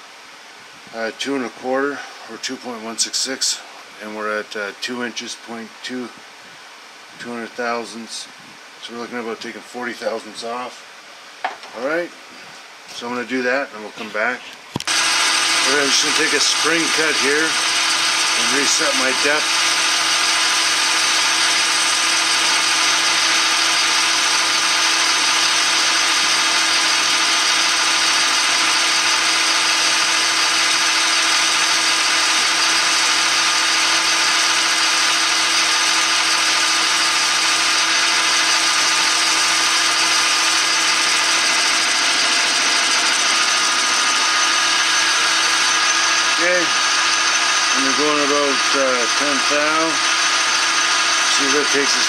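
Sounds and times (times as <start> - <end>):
metal lathe whine: 14.8 - 52.0.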